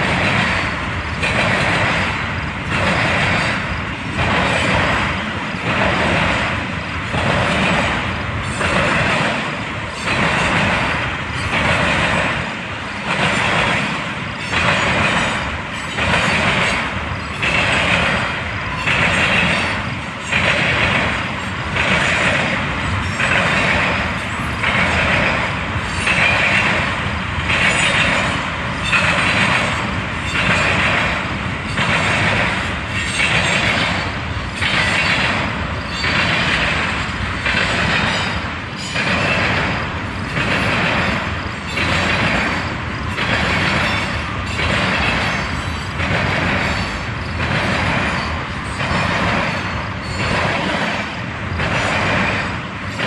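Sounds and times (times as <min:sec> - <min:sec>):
freight train rolling past: 0:00.0 - 0:53.0.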